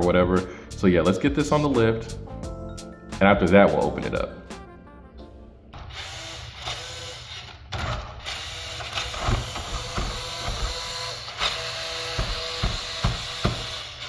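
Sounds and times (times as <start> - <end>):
toy truck motor whine: 5.8 - 14.0
sharp knocks: 9.2 - 10.8, 12.1 - 13.8.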